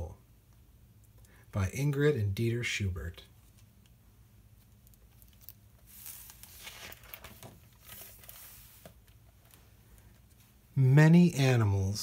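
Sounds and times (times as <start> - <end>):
book pages rustling: 4.6 - 10.6.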